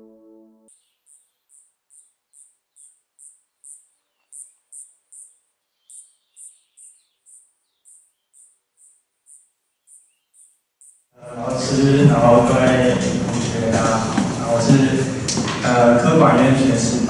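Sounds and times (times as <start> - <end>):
faint bird calls: 0.7 - 11.0
insect chirping: 0.7 - 11.2.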